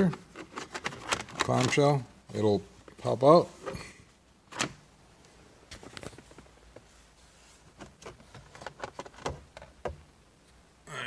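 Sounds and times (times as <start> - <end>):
plastic clicks and knocks: 7.8 - 10.0.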